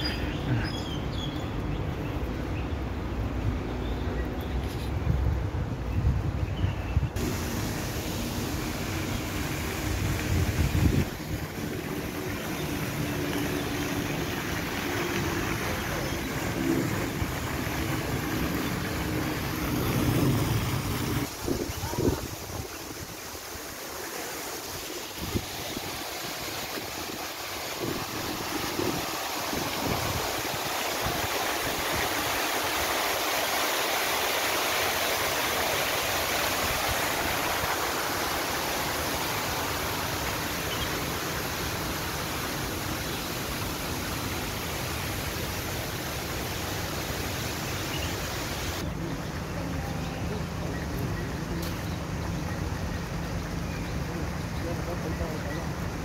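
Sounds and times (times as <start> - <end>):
waterfall rushing: 7.2 - 50.7.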